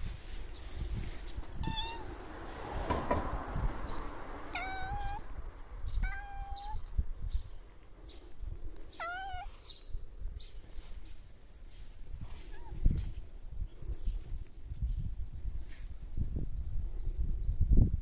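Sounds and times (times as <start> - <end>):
cat meowing: 1.6 - 2.2, 4.5 - 5.3, 6.0 - 6.9, 8.9 - 9.6.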